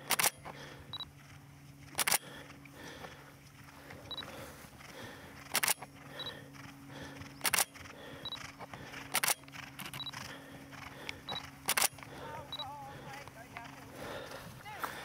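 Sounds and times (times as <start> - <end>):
camera shutter firing: 0.0 - 0.4, 2.0 - 2.3, 5.5 - 5.8, 7.4 - 7.7, 9.1 - 10.0, 11.6 - 11.9.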